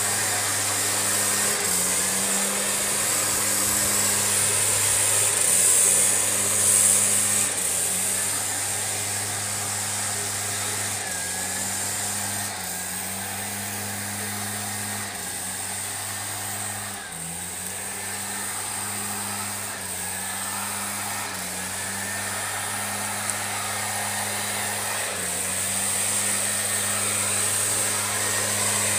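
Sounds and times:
leaf blower engine running: 0.0 - 28.9
air rushing from blower tube: 18.1 - 28.9.

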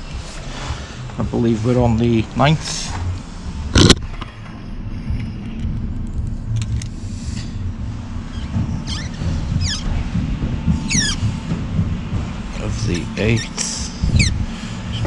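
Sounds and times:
steady low rumble: 0.0 - 15.0
marker squeaking on metal: 8.3 - 10.0, 10.8 - 11.3, 13.4 - 14.4.

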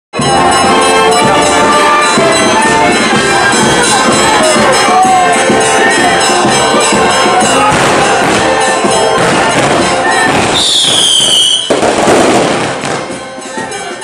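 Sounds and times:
fireworks crackling: 0.2 - 14.0
music: 0.2 - 14.0
whistling firework: 9.6 - 13.0.

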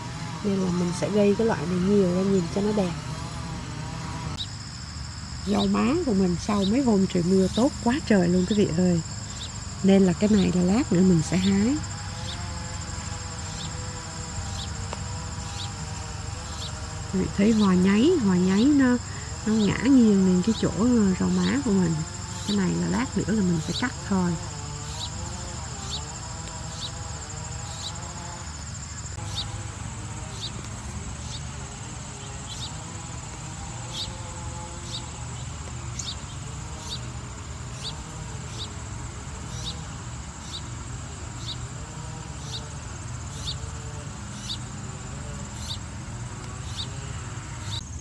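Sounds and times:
cricket chirping: 0.0 - 48.0
crickets trilling: 0.0 - 48.0.

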